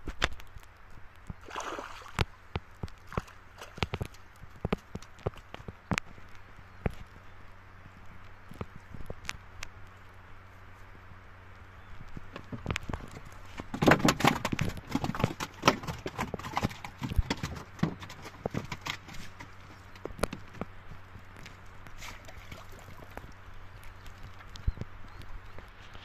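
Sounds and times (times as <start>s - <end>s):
water splashing: 1.3s - 4.2s, 21.9s - 26.0s.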